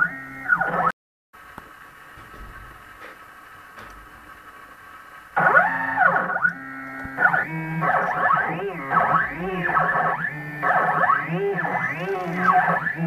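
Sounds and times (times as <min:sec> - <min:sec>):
stepper motors whining: 0:00.0 - 0:00.9, 0:03.8 - 0:13.0.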